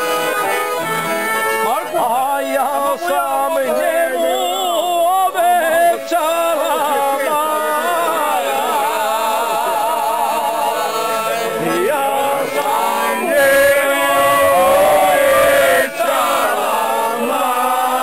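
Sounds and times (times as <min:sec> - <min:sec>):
piano accordions: 0:00.0 - 0:18.0
men singing together: 0:01.7 - 0:18.0.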